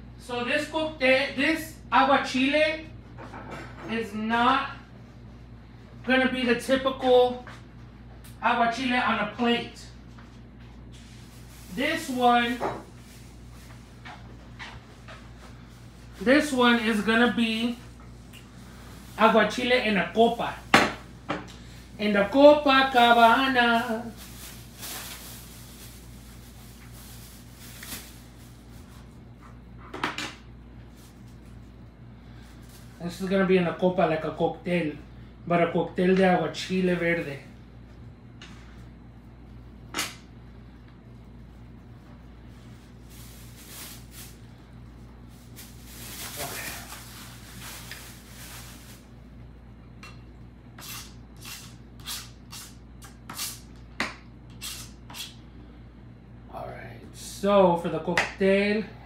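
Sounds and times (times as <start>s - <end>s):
plastic bag crinkling: 11.0s - 13.9s, 22.6s - 28.9s, 42.8s - 44.6s, 45.2s - 49.1s.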